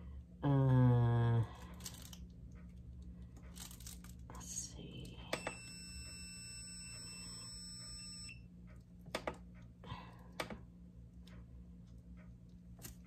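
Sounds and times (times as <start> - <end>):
long high electronic beep: 5.4 - 8.4.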